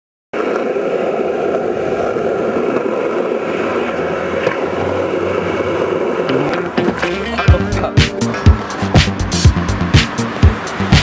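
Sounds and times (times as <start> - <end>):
small wheels rolling on asphalt: 0.4 - 7.4.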